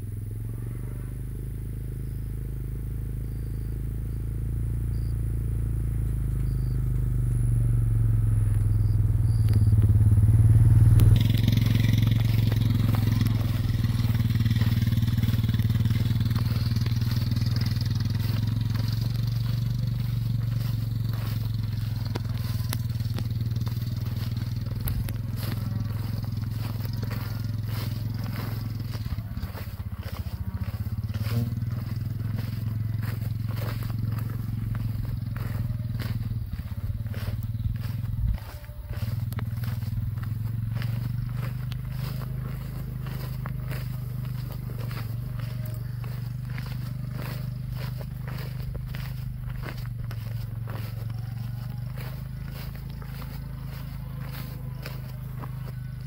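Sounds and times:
small engine running: 0.0s - 56.0s
rough rustling and crackling: 9.4s - 56.0s.

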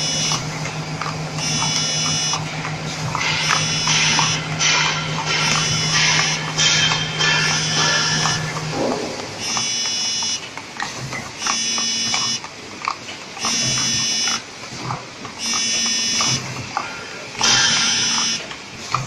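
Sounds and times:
machine buzzing tone: 0.0s - 12.5s, 13.4s - 14.5s, 15.4s - 19.0s
steady low hum: 0.0s - 12.9s
machine clicks and clatter: 0.0s - 19.0s.

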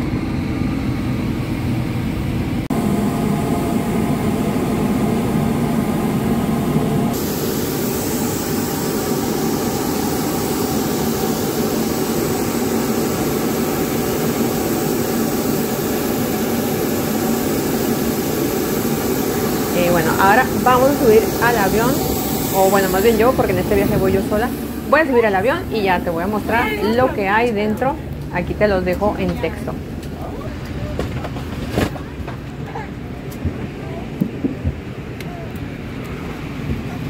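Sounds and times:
engine drone: 0.0s - 37.0s
hiss: 5.4s - 26.8s.

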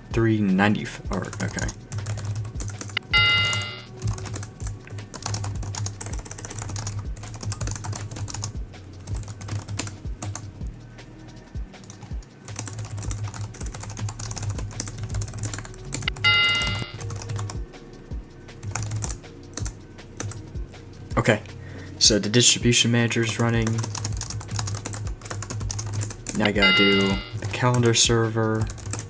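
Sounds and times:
music playing: 0.0s - 29.0s
short ringing tone: 3.1s - 3.9s, 16.2s - 17.0s, 26.6s - 27.3s.

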